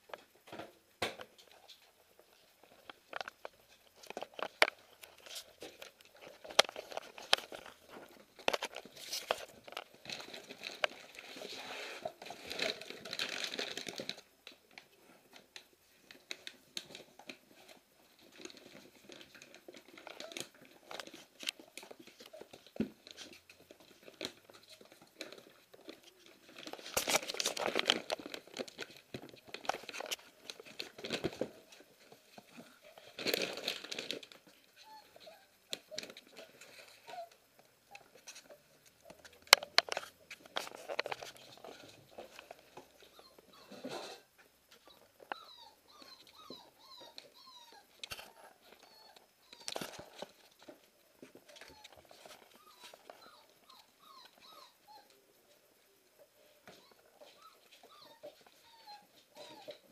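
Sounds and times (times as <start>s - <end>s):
puppies tearing paper: 5.1s - 14.2s, 18.4s - 31.8s, 32.8s - 37.3s.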